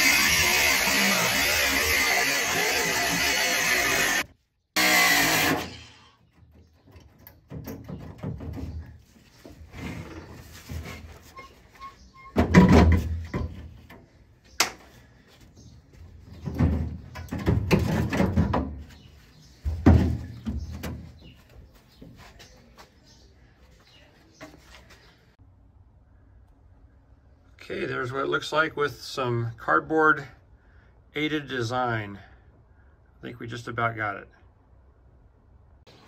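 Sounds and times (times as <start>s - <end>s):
sheet metal clunks and rattles: 6.4s - 9.0s, 12.2s - 14.0s, 16.3s - 18.9s, 19.6s - 21.2s.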